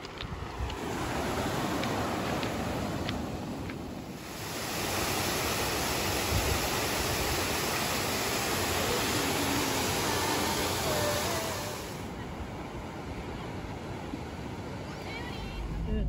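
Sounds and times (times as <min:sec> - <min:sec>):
waterfall pouring into a pool: 0:04.2 - 0:12.1.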